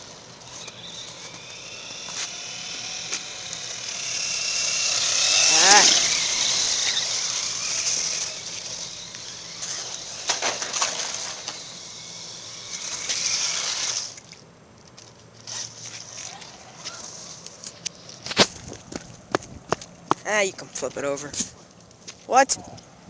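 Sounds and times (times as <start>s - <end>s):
tyres churning snow: 0.0s - 14.2s.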